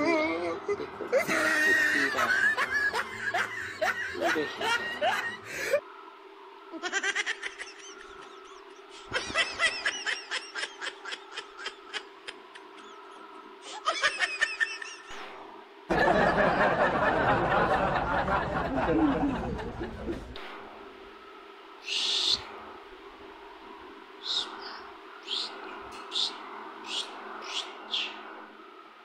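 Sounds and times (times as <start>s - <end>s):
high-pitched snickering laughter: 0.0s - 5.8s, 6.7s - 15.2s
faint steady hum: 0.0s - 29.0s.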